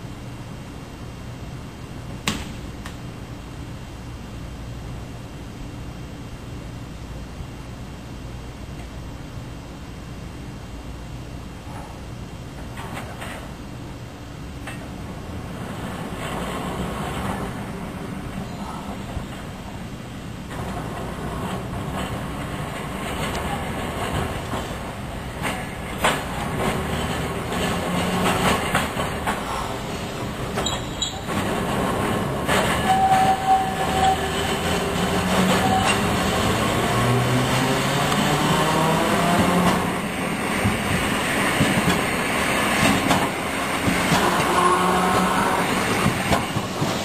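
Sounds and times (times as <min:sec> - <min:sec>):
streetcar running on track: 0:03.0 - 0:47.0
wheels clicking over rail joints: 0:20.5 - 0:37.3, 0:39.4 - 0:44.7.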